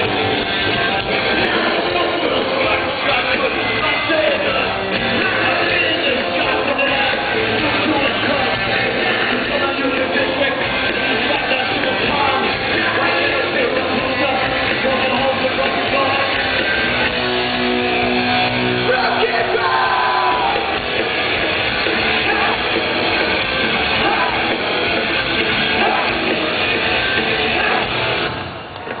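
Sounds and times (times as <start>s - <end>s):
punk rock band playing live: 0.0s - 28.5s
person singing: 0.6s - 16.8s
person yelling: 18.9s - 20.7s, 22.2s - 22.6s, 24.0s - 24.5s, 25.7s - 26.2s, 27.5s - 27.9s.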